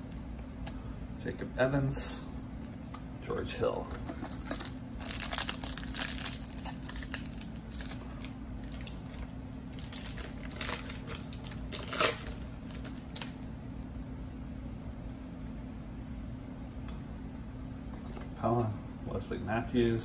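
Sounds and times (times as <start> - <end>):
foil wrapper crinkling: 4.2 - 13.4.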